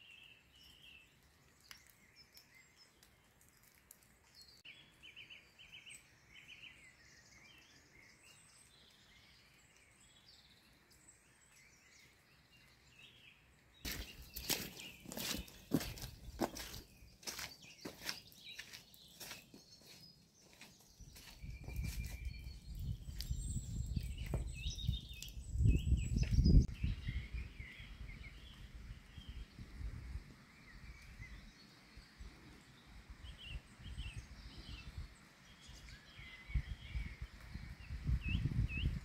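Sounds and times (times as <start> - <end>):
small birds chirping: 0.0 - 39.0
wind rumbling on microphone: 21.0 - 39.0.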